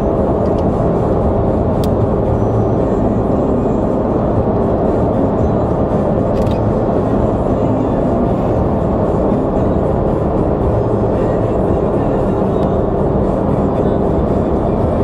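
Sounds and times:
car engine and tyre hum: 0:00.0 - 0:15.0
music playing: 0:00.0 - 0:15.0.

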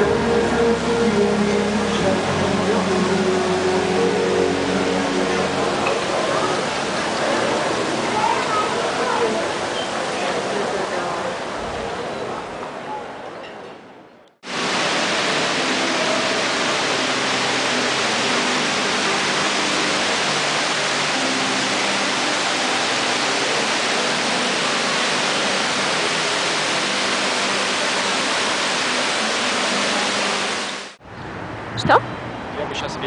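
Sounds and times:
waterfall pouring into pool: 0:00.0 - 0:12.2, 0:14.4 - 0:31.0.

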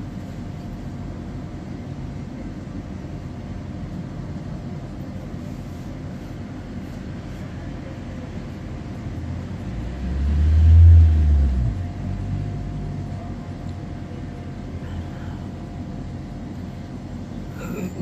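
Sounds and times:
faint steady whine: 0:00.0 - 0:18.0
tram low rumble: 0:00.0 - 0:18.0
deep hum: 0:07.9 - 0:18.0.

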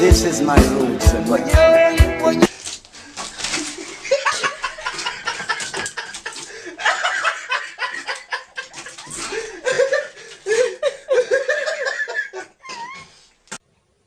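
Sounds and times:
people laughing softly: 0:03.4 - 0:13.2.

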